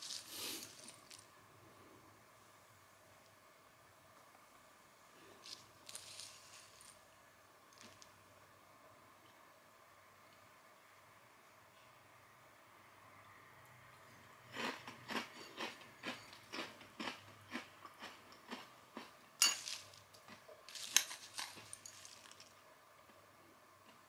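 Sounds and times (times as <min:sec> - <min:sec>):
chewing crunchy snack: 0:00.0 - 0:01.3, 0:05.4 - 0:07.0, 0:14.5 - 0:23.2.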